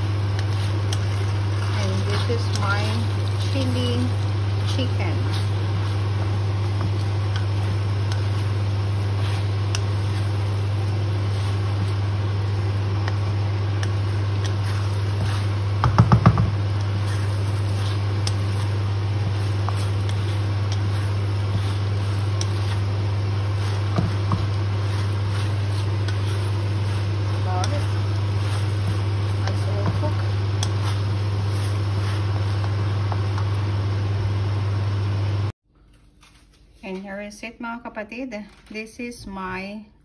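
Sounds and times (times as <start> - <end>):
food stir-frying in a wok: 0.0 - 35.5
steady low hum: 0.0 - 36.1
rapid knocks: 15.8 - 16.6.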